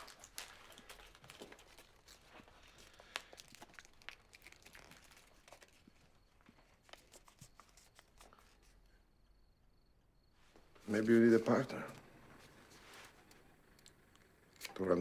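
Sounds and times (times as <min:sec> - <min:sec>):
faint rustling: 0:10.3 - 0:14.1.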